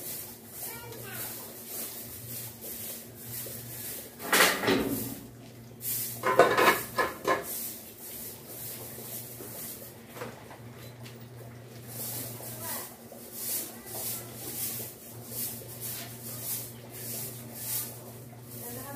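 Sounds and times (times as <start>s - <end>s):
metal pail clanking on workbench: 4.2s - 5.2s, 6.2s - 7.6s.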